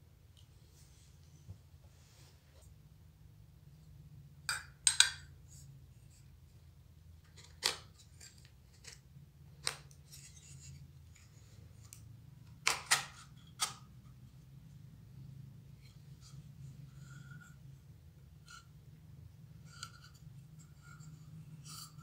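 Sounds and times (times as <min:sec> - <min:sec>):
faint metal scraping: 0:15.7 - 0:18.9, 0:19.5 - 0:22.0.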